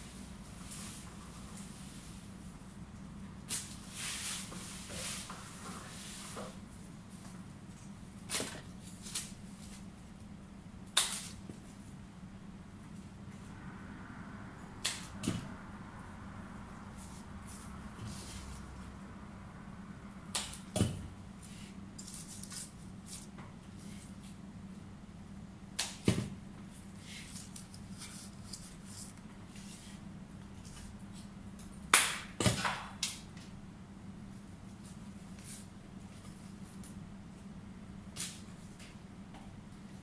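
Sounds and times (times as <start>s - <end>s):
low room hum: 0.0s - 40.0s
stems snapping: 14.8s - 15.1s.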